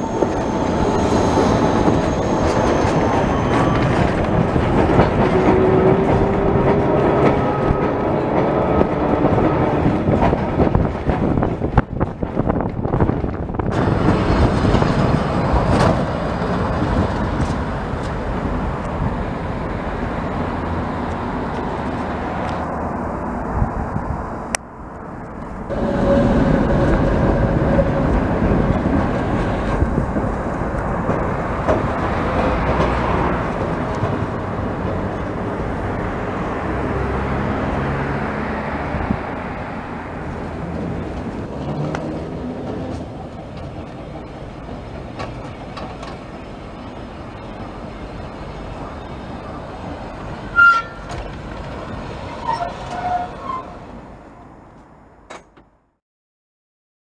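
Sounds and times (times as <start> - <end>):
tram wheels rumbling over rails: 0.0 - 55.6
clicks of wheels on rails: 1.9 - 19.1, 26.8 - 35.6, 40.2 - 46.9, 50.2 - 53.5.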